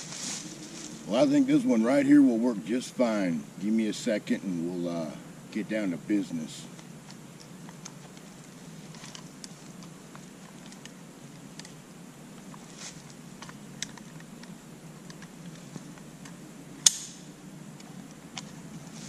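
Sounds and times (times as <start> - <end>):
rifle handling clicks and taps: 13.4 - 17.1
sharp loud click: 16.8 - 17.3.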